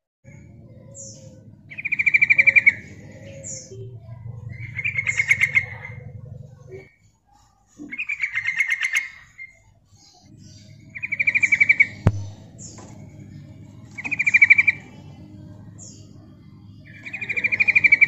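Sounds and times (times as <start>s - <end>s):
low background hum: 0.2s - 18.0s
bird bubbling calls: 0.3s - 7.0s, 7.8s - 18.0s
high squeaky bird notes: 0.3s - 18.0s.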